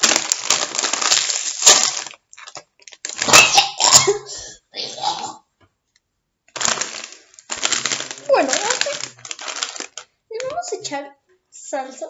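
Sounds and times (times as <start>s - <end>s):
chip bag crinkling: 0.0s - 4.3s, 6.5s - 10.8s.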